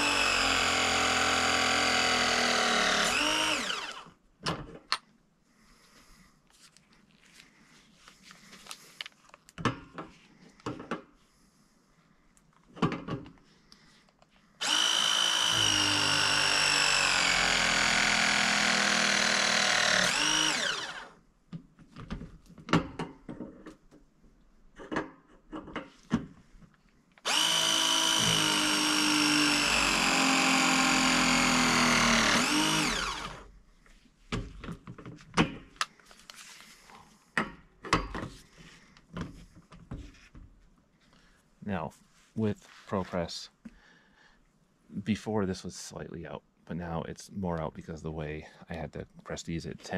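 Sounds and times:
press tool motor whine: 0.0 - 4.1, 14.6 - 21.2, 27.2 - 33.5.

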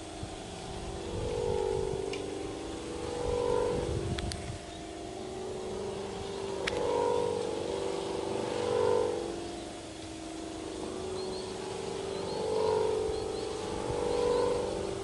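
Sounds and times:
kite whistle hooting drone: 0.0 - 15.0
wind rumbling on microphone: 0.0 - 15.0
faint sharp clicks: 6.6 - 6.9.

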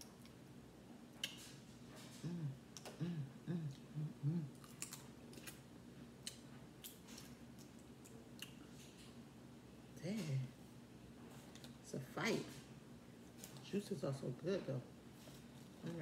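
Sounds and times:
person humming mm: 2.1 - 4.7.

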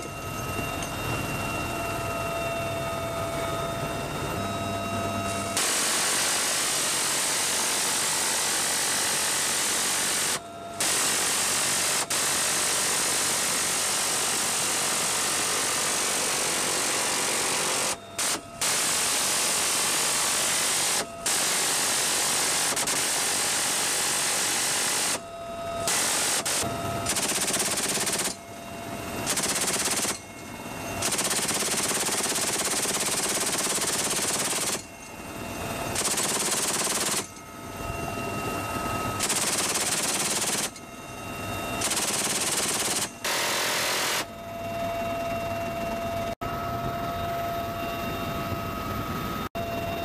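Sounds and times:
helicopter turbine whine: 0.0 - 50.0
machine gun firing bursts: 5.6 - 25.2, 25.9 - 28.4, 29.2 - 30.2, 31.0 - 34.9, 36.0 - 37.3, 39.2 - 40.8, 41.8 - 44.2.

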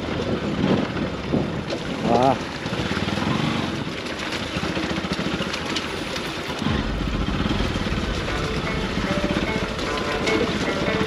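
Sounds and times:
motorcycle engine running at low revs: 2.6 - 11.0.

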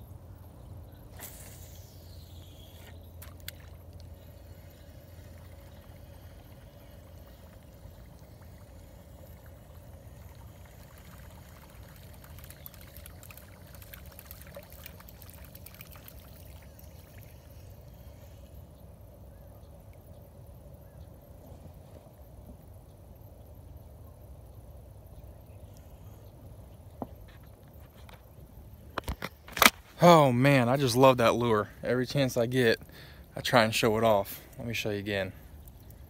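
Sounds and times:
lure gurgling and splashing: 1.1 - 18.5.

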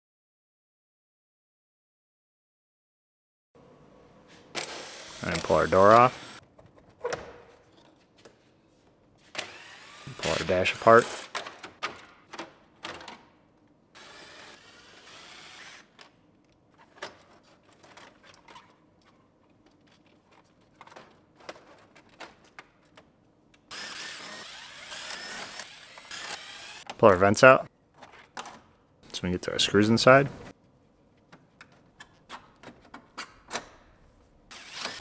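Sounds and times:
cordless drill running: 4.6 - 6.4, 9.4 - 11.4, 14.0 - 15.9, 23.7 - 26.8, 34.5 - 35.0.

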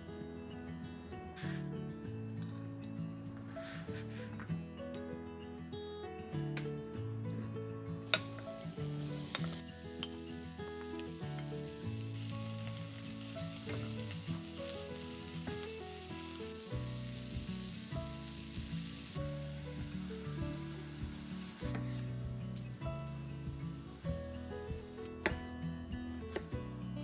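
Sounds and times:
background music: 0.0 - 27.0
vegetables sizzling in a frying pan: 8.1 - 25.3.

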